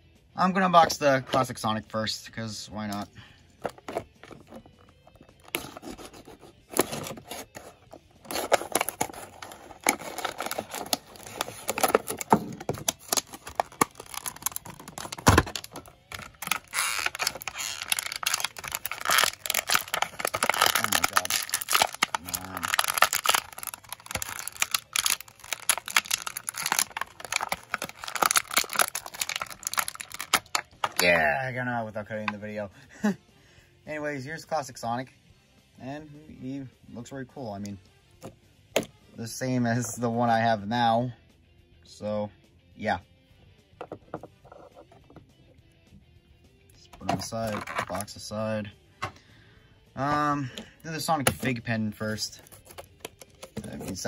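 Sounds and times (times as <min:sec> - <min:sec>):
plastic packaging crinkling and tearing: 0:03.6 - 0:31.1, 0:47.2 - 0:48.0, 0:52.2 - 0:54.0
plastic snapping: 0:08.3 - 0:31.0.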